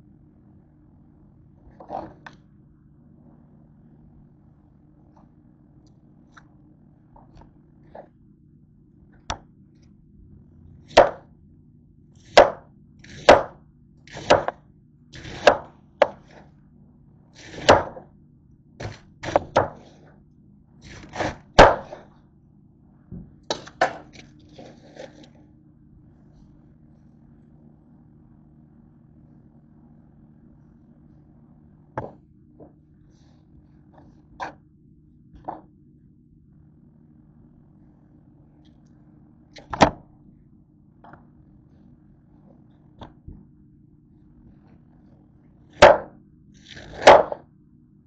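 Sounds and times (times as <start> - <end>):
knife chopping cabbage on board: 10.9 - 11.2, 12.3 - 14.6, 15.2 - 16.4, 17.4 - 18.0, 18.8 - 19.9, 20.9 - 22.0.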